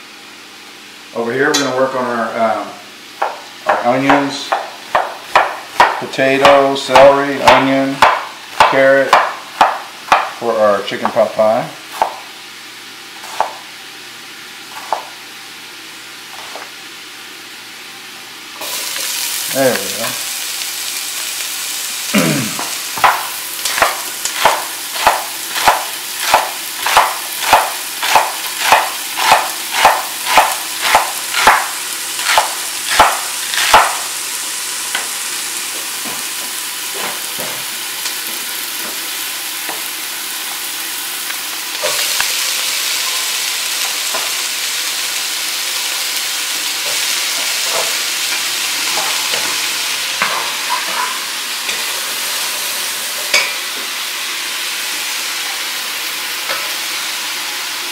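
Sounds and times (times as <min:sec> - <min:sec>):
onions sizzling in oil: 0:02.9 - 0:57.9
knife chopping on wooden board: 0:03.2 - 0:10.4, 0:11.9 - 0:12.2, 0:13.2 - 0:13.6, 0:14.7 - 0:15.1, 0:23.0 - 0:34.0.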